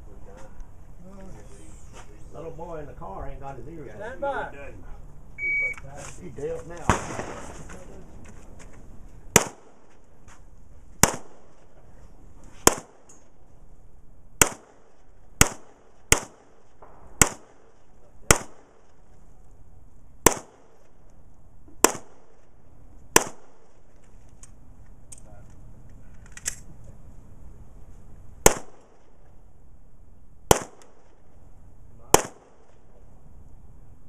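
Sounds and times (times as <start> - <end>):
handgun shots: 11.0 - 11.4, 23.2 - 23.6, 30.5 - 31.0.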